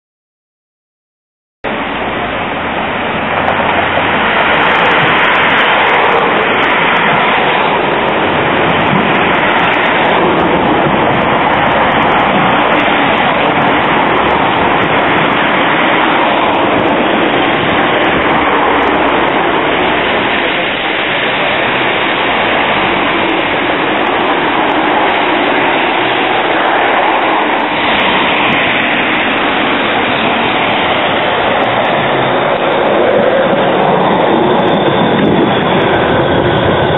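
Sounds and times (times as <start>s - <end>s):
trams rushing on track: 1.7s - 36.9s.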